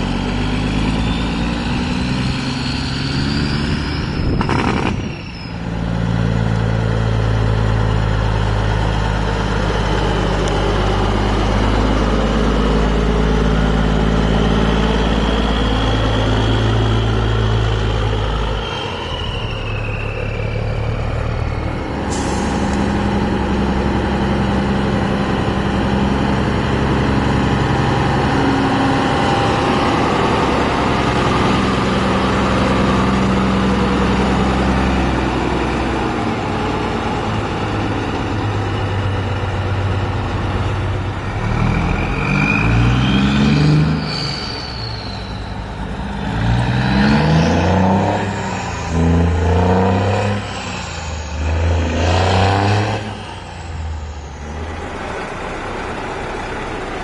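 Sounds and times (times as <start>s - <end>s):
truck diesel engines: 0.0s - 57.0s
air brake hiss: 22.1s - 22.9s.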